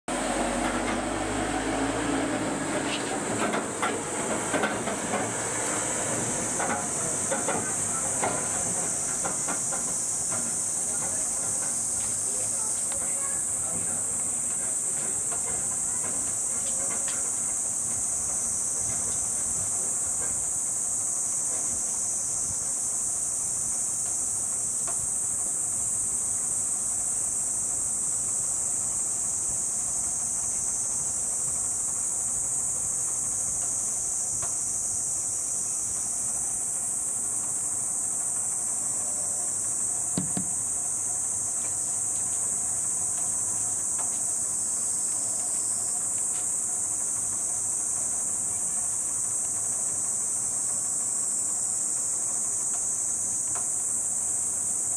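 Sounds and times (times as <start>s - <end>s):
high insect drone: 0.1s - 54.9s
short thump: 40.2s - 40.6s.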